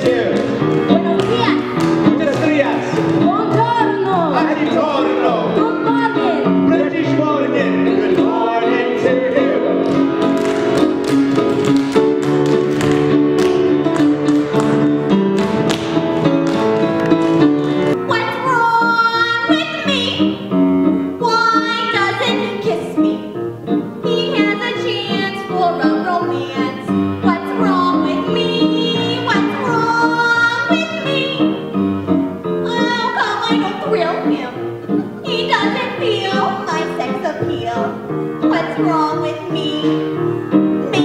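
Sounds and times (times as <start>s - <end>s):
tap-dance steps on stage floor: 0.0s - 3.8s, 9.8s - 18.0s
theatre band music: 0.0s - 41.0s
woman singing: 24.1s - 31.6s.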